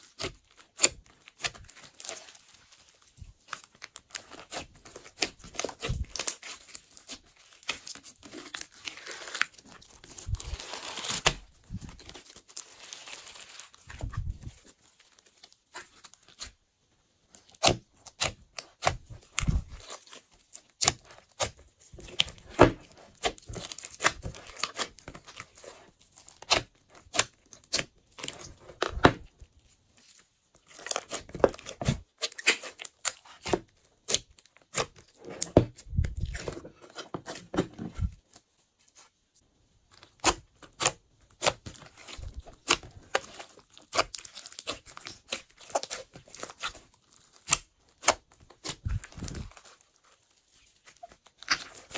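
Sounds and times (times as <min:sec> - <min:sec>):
slime popping and squelching: 0:40.1 - 0:49.7, 0:50.8 - 0:51.9.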